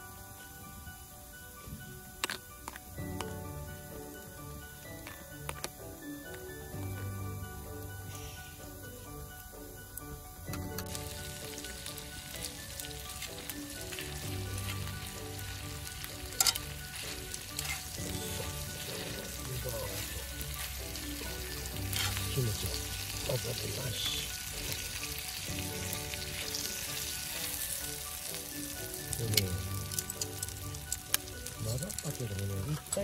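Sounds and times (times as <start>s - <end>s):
food sizzling in frying pan: 0.0s - 33.0s
metal tongs scraping pan: 16.2s - 20.8s, 21.8s - 23.0s.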